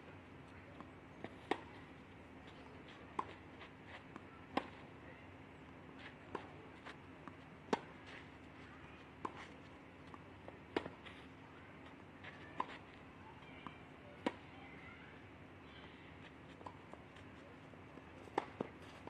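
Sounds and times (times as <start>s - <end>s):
faint steady hum: 0.0s - 19.0s
tennis balls struck by racquets: 0.8s - 1.9s, 2.6s - 5.0s, 5.6s - 13.0s, 18.2s - 19.0s.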